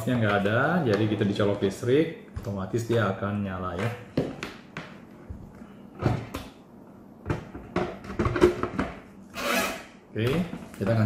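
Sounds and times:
plastic parts knocking and clicking: 7.2 - 9.0.

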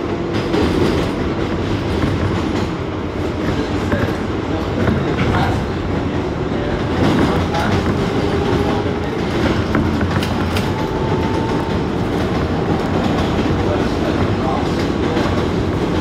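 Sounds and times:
train wheels rumbling on rails: 0.0 - 16.0
wheels clicking over rail joints: 6.8 - 16.0.

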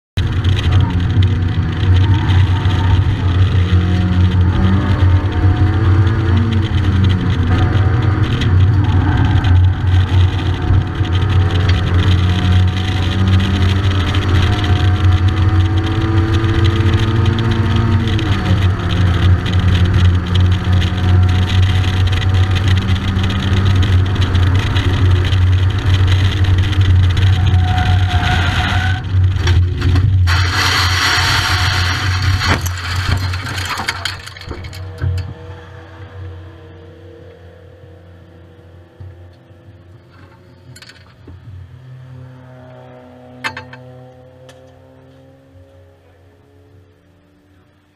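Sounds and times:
race car engine at hard throttle: 0.2 - 47.9
rush of noise: 25.9 - 34.8.

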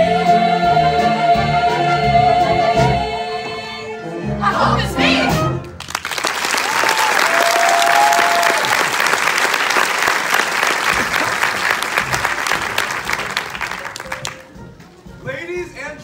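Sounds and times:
audience applauding: 5.8 - 14.6
crowd cheering: 6.0 - 14.4.

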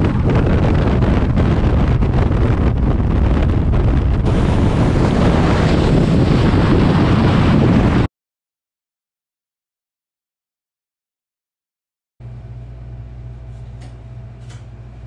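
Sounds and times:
wind buffeting microphone: 0.0 - 8.1.

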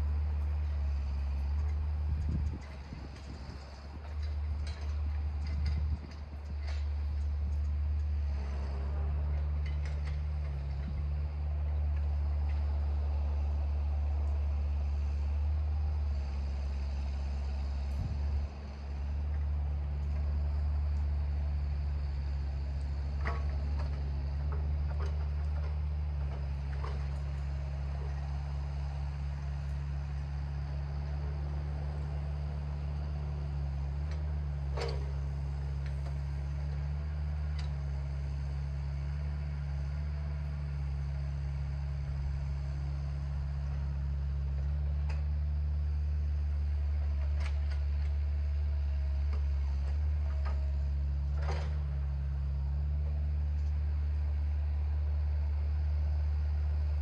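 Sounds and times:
vehicle engine droning: 0.0 - 57.0
clicks and light knocks: 4.0 - 8.6, 9.3 - 11.0, 23.2 - 27.2, 34.0 - 35.2, 44.6 - 45.3, 47.0 - 48.3.

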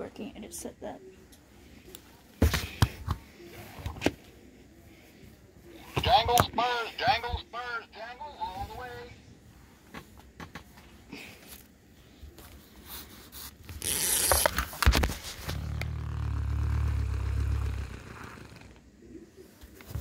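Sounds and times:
plush toy rustling and scraping: 9.6 - 18.3
low steady hum: 14.9 - 20.0.

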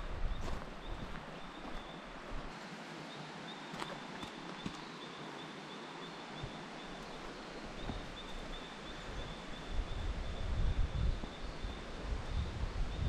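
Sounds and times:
wind buffeting microphone: 0.0 - 2.5, 7.8 - 13.0
faint high pulsing chirp: 3.0 - 13.0.

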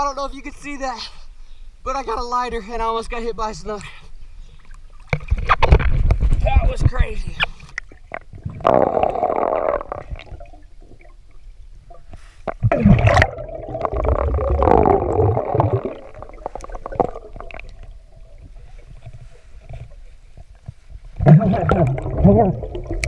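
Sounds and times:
breath bubbling underwater: 8.3 - 11.2, 11.9 - 19.8, 21.2 - 23.0.

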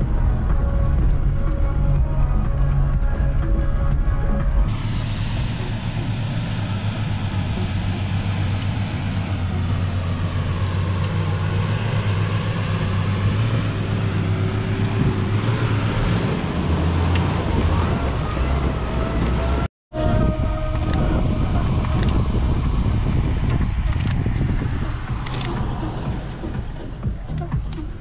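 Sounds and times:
background music: 0.0 - 10.5, 18.5 - 28.0
road and wind noise: 0.0 - 28.0
vehicle engine drone: 0.0 - 28.0.

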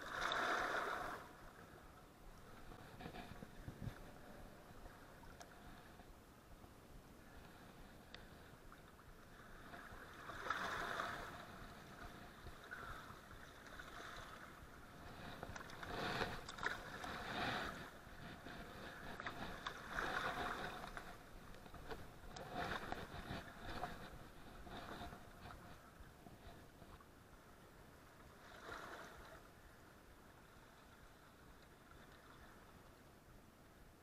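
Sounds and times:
small waves sloshing against rocks: 0.0 - 6.0, 7.3 - 26.9, 28.3 - 29.8.

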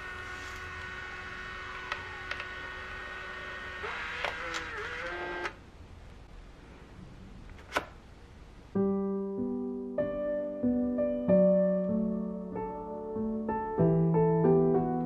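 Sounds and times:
photo printer motor whining: 0.0 - 5.6
printer clicks: 3.9 - 5.6.

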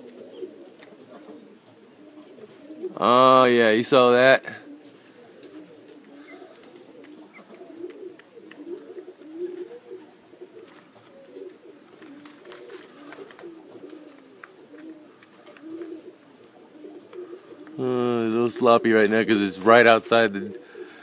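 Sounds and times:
pigeons cooing: 0.0 - 21.0.

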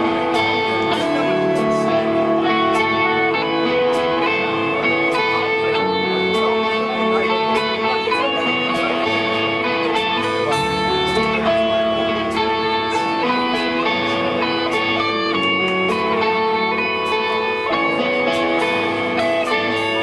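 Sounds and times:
bass: 0.0 - 20.0
drum kit: 0.0 - 20.0
electric guitars: 0.0 - 20.0
cymbal strikes: 7.6 - 16.2.

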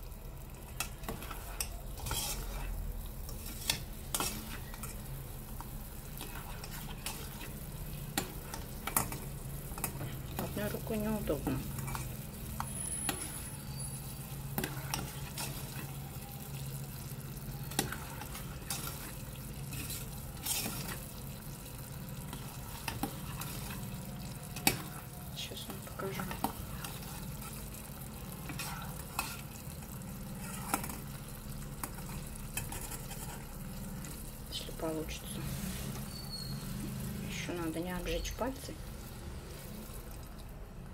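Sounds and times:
syrup boiling and bubbling: 0.0 - 40.9.

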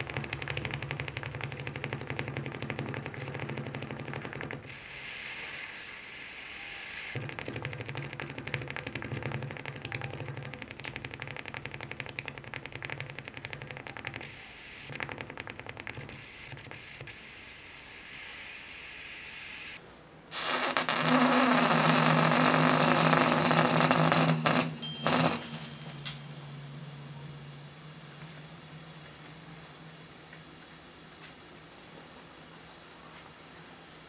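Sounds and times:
loud steady hiss with hum: 4.7 - 7.5, 16.1 - 34.0
hot metal crackling and sizzling: 20.3 - 29.5.

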